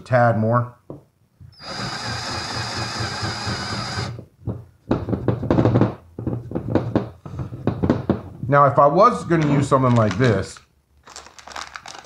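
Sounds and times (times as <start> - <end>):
rotary tool whining: 1.6 - 4.2
knocks and handling noises: 4.2 - 8.5.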